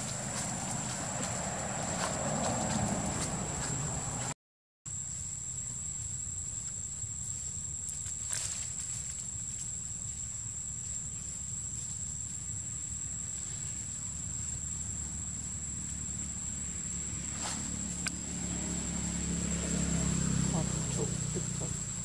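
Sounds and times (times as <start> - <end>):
insects droning: 0.0 - 22.0
rustle and click: 7.8 - 10.2.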